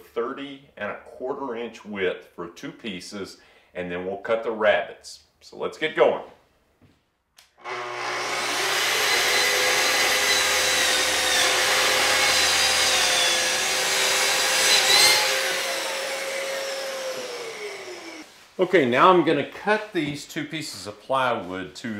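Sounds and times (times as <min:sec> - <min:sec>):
track saw motor whining: 0:07.6 - 0:18.2.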